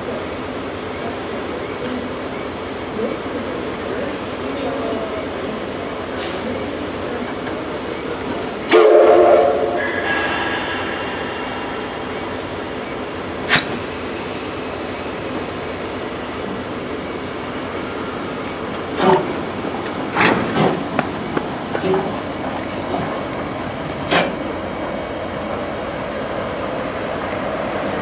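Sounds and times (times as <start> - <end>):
steady hiss: 1.4 - 23.4
steam locomotive whistle: 8.7 - 10.9
sharp clank: 8.7 - 12.6.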